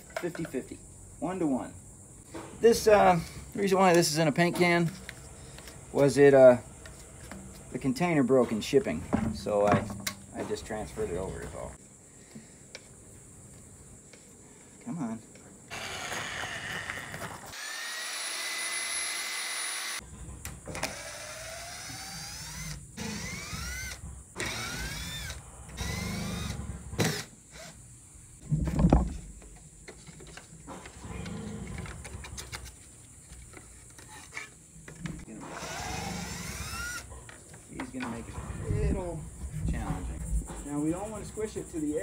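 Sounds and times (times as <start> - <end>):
electric drill motor whining: 15.7 - 20.0, 20.8 - 27.7, 35.5 - 37.1.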